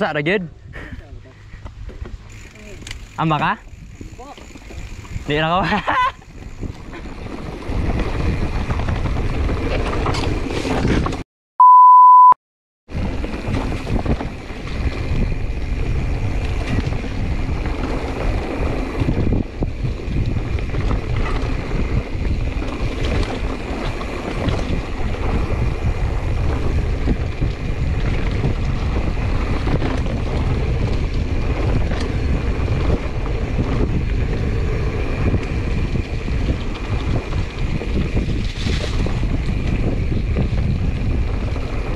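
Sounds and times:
wind on microphone: 0.5s - 11.2s, 12.9s - 41.9s
bike rattling: 1.4s - 11.2s, 12.9s - 41.9s
mountain bike rolling on dirt: 1.4s - 11.2s, 12.9s - 41.9s
short one-tone beep: 11.6s - 12.4s.

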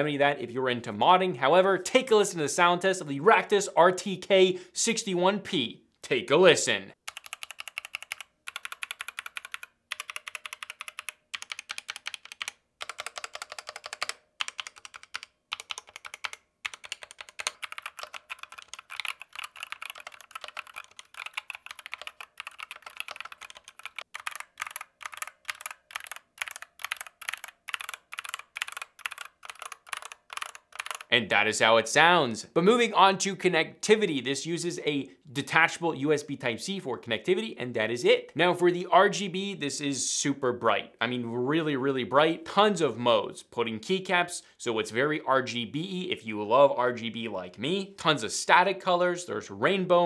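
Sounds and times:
mechanical keyboard typing: 7.1s - 31.1s.

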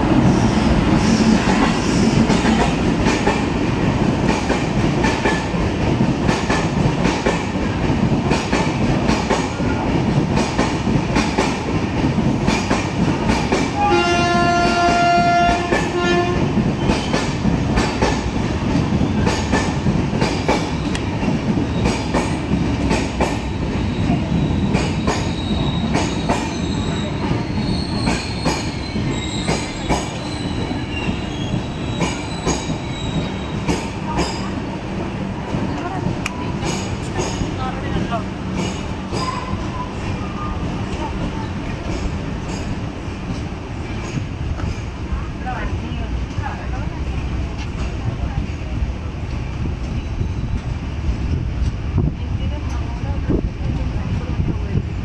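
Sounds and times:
train wheels rumbling: 0.0s - 55.0s
locomotive horn: 13.8s - 16.6s
rail joints clattering: 35.4s - 51.8s.

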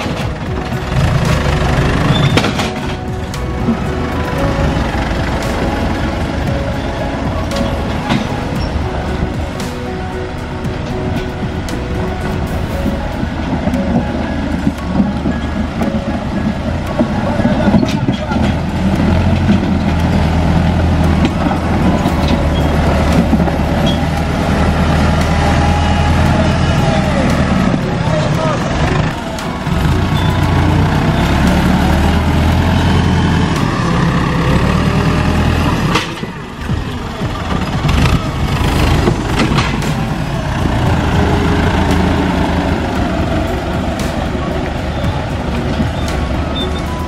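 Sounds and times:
tractor diesel engine droning: 0.0s - 47.0s
blade pushing mud and soil: 12.5s - 47.0s.

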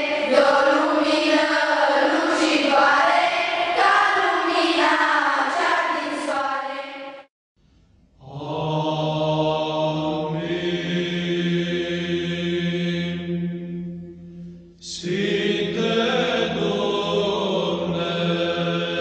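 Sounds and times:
voices chanting: 0.0s - 6.9s, 8.3s - 13.3s, 14.8s - 19.0s
low drone note: 12.4s - 14.8s.

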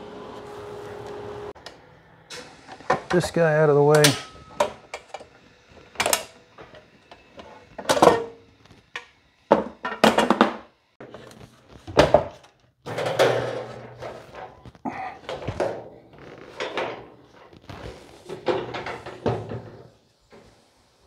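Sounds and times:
metal tables clanking: 2.4s - 5.2s, 12.0s - 14.6s, 18.2s - 20.0s.

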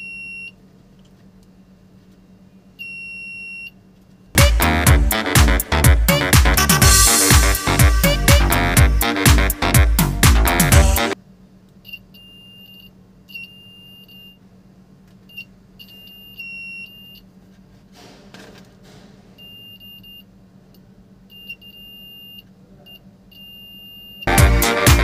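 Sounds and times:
piezo buzzer beeping: 4.4s - 11.2s, 23.4s - 25.0s.

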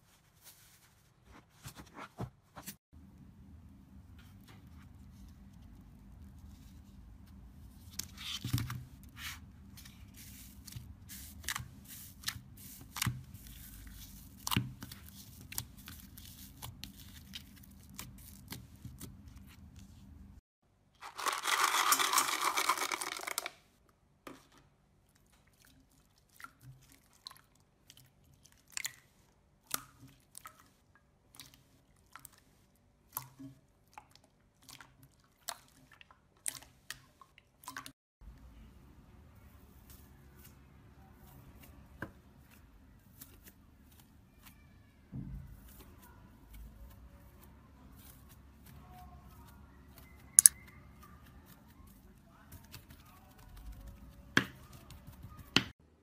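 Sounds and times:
foam beads pouring patter: 21.0s - 23.5s.

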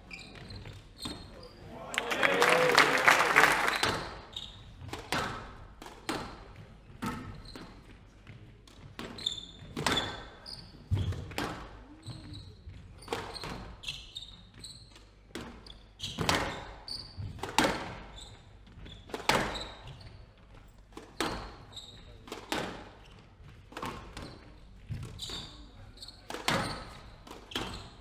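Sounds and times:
shoes squeaking on wooden floor: 0.0s - 1.8s, 6.0s - 28.0s
squash ball hits: 4.8s - 7.7s, 17.2s - 18.1s, 19.1s - 19.7s, 26.3s - 27.8s.

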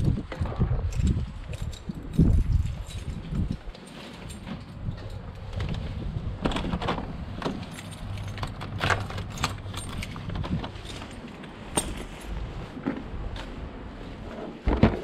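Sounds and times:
keys jangling in a lock: 0.9s - 5.4s, 7.4s - 12.3s.

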